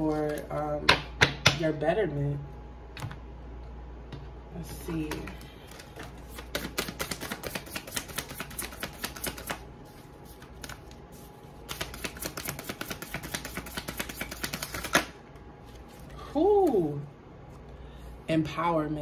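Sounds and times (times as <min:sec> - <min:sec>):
cards being shuffled: 0:04.9 - 0:16.9.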